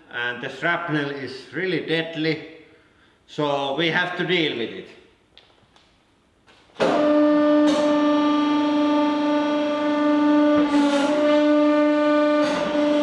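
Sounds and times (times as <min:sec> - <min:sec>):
hydraulic press pump drone: 0:06.8 - 0:13.0.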